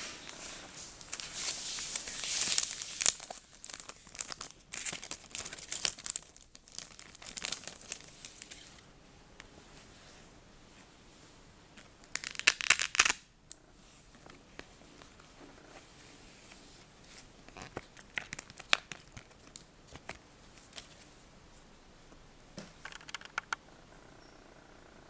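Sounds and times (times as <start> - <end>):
paper rustling and crinkling: 0.0 - 8.8.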